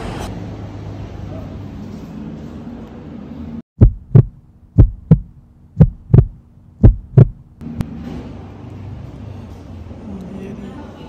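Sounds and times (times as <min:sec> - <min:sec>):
heartbeat thumps: 0:03.8 - 0:07.6
low steady hum: 0:03.8 - 0:07.9.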